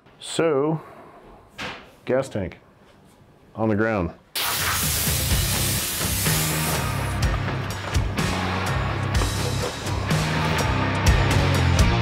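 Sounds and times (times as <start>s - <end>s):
background music: 4.6s - 12.0s.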